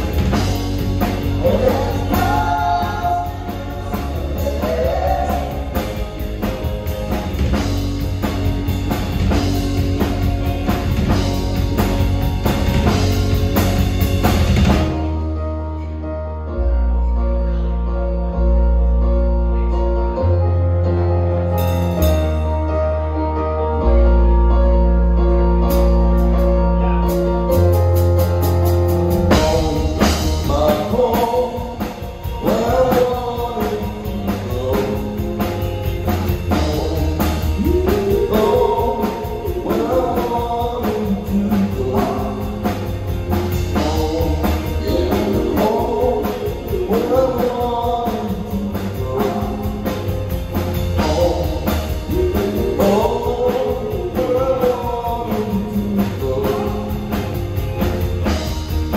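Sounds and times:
drum kit: 0:00.0 - 0:15.8, 0:21.3 - 0:23.1, 0:25.3 - 0:58.9
electric guitar: 0:00.0 - 0:58.9
keyboard chords: 0:00.0 - 0:58.9
woman singing: 0:01.4 - 0:05.9.

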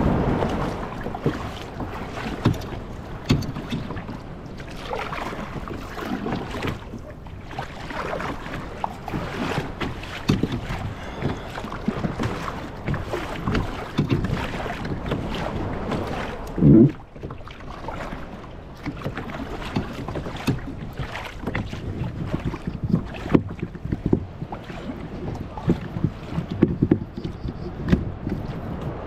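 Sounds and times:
water splashing and lapping: 0:00.0 - 0:29.0
wind on microphone: 0:00.0 - 0:29.0
knocks against kayak hull: 0:00.2 - 0:04.2, 0:09.5 - 0:17.4, 0:18.8 - 0:28.9.

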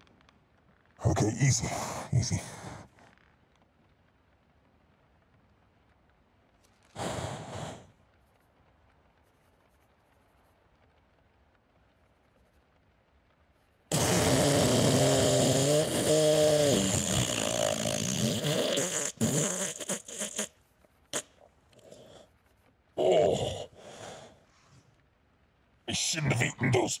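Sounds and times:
fart noise: 0:13.9 - 0:20.5.

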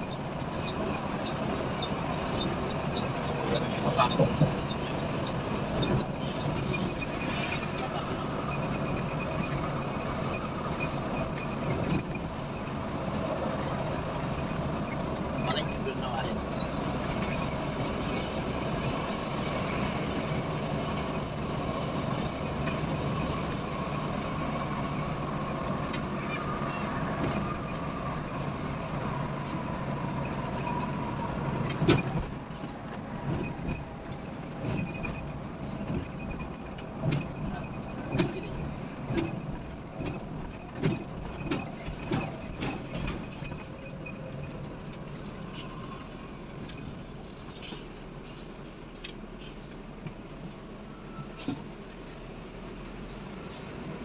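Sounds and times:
coach engine and road rumble: 0:00.0 - 0:54.0
knocks and rattles: 0:31.6 - 0:45.0.

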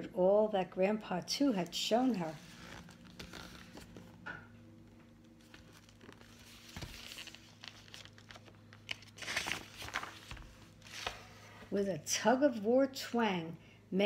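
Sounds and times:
book pages turning: 0:01.8 - 0:11.7
paper rustling: 0:01.9 - 0:04.2, 0:05.4 - 0:11.6.

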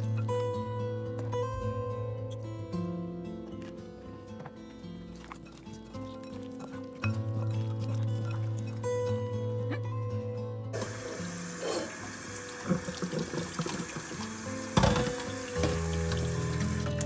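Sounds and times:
background music: 0:00.0 - 0:17.0
water pouring into sink: 0:10.8 - 0:17.0.

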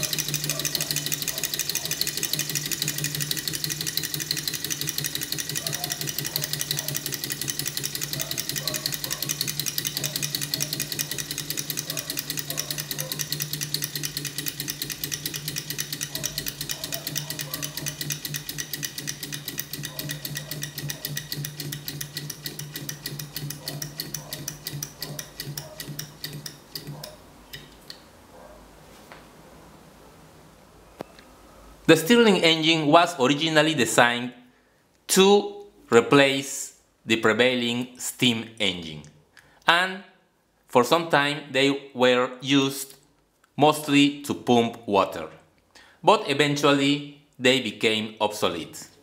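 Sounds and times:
stirling engine mechanical clicking: 0:00.0 - 0:27.7.

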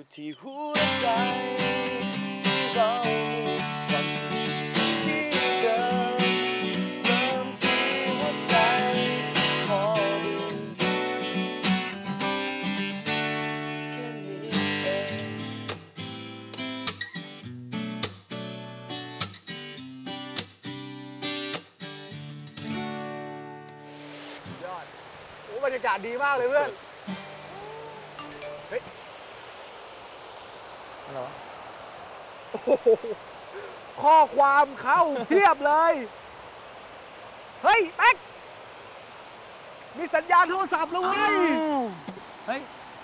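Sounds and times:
person singing: 0:00.2 - 0:11.0, 0:13.7 - 0:15.5, 0:27.5 - 0:28.4
acoustic guitar strumming: 0:00.6 - 0:24.6, 0:27.1 - 0:28.9.

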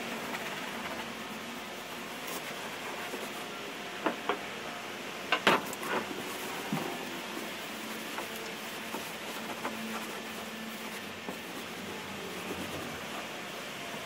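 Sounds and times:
steady background hiss: 0:00.0 - 0:14.0
rag scuffing on plywood: 0:05.6 - 0:13.1.

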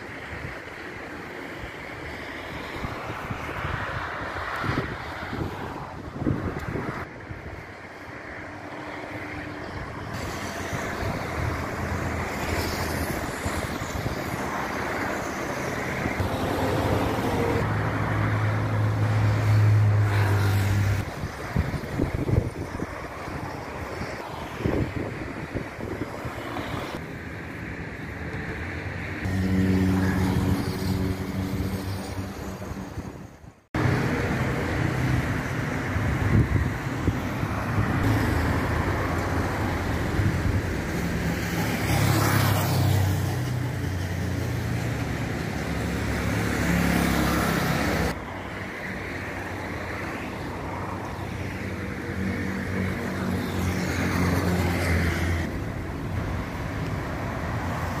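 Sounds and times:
car engines humming: 0:00.0 - 0:58.0
tyre noise of passing vehicles: 0:00.0 - 0:58.0.

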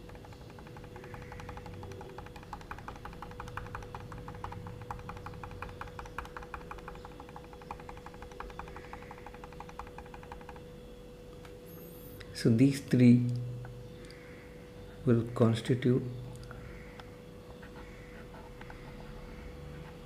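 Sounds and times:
digital pen scratching: 0:00.0 - 0:10.6
faint steady hum: 0:00.0 - 0:20.0.

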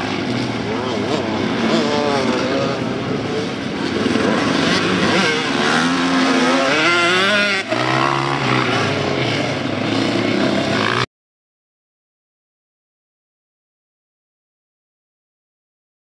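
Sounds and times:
dirt bike engines revving: 0:00.0 - 0:11.1.

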